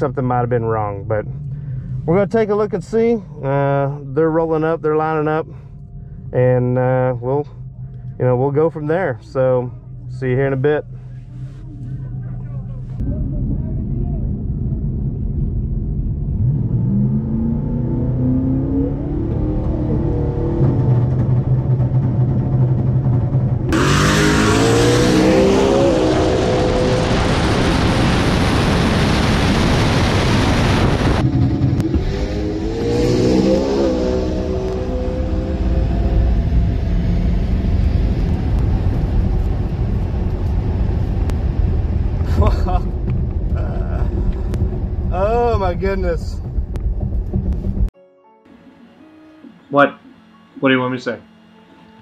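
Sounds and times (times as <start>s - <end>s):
muffled car engine idling and revving: 0.0s - 48.0s
wind and road noise rushing: 13.0s - 47.9s.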